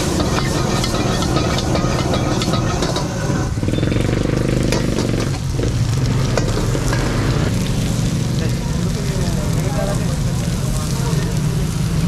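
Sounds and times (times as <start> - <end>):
metal ladle scraping wok: 0.0 - 7.6
flames flaring: 0.0 - 12.0
food sizzling: 0.0 - 12.0
gas wok burner roaring: 0.0 - 12.0.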